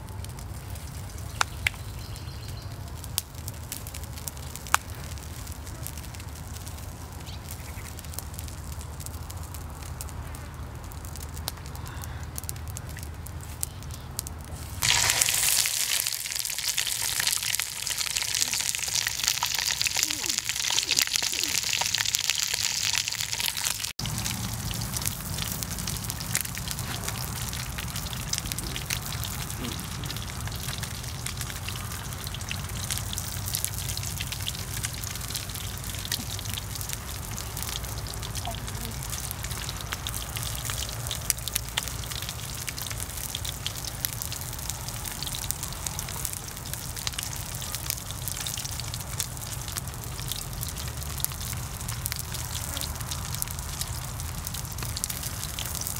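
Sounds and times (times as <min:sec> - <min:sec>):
fish sizzling in a pan: 0:14.6 - 0:55.9.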